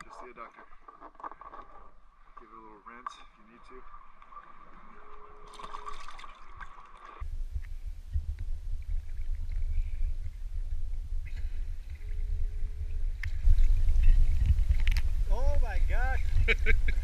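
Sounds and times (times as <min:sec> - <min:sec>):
water sloshing: 0:00.0 - 0:07.2
faint clicks and scrapes: 0:00.0 - 0:15.2.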